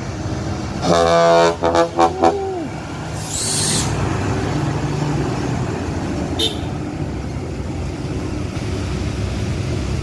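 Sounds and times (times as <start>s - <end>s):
diesel truck engine passing: 0.0s - 10.0s
truck horn blowing: 0.8s - 2.5s, 6.4s - 6.8s
air hiss: 3.1s - 4.0s.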